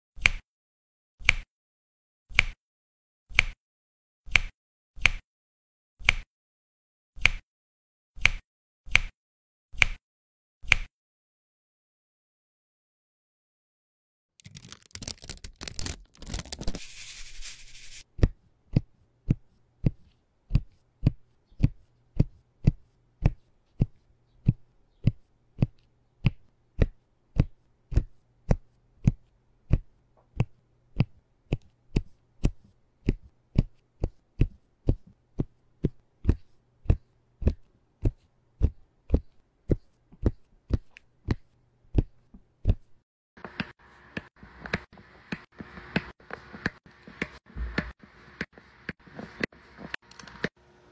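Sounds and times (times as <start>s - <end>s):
plastic film crinkling: 14.4s - 18.0s.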